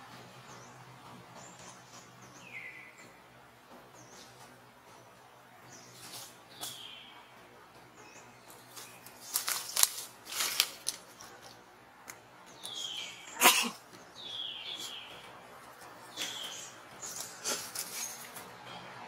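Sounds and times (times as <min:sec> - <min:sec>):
rustles: 0:03.7 - 0:07.0, 0:08.4 - 0:11.7, 0:14.7 - 0:19.0.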